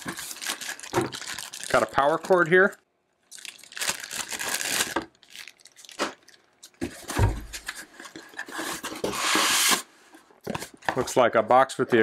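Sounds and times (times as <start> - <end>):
plastic bag crinkling: 0.0 - 6.8
foam scraping cardboard box: 8.5 - 9.9.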